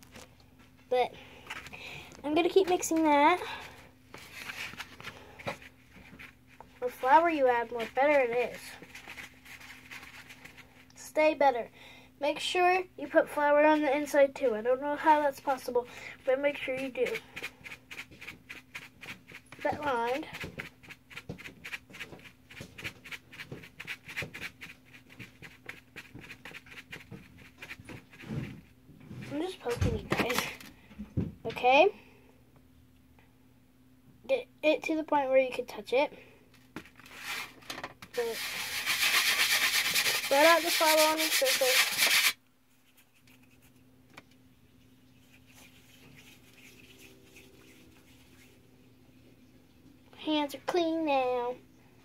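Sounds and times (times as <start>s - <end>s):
faint steady hum: 0.0s - 52.0s
hands rustling play dough: 1.3s - 10.9s, 38.2s - 43.9s, 44.6s - 49.0s.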